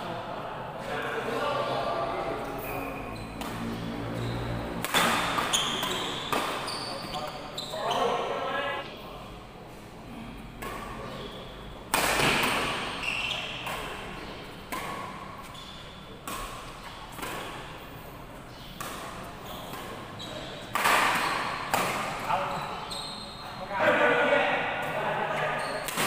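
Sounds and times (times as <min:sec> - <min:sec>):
rackets striking shuttlecock: 0:03.4 - 0:03.9, 0:04.8 - 0:06.7, 0:11.8 - 0:17.8, 0:18.5 - 0:22.3.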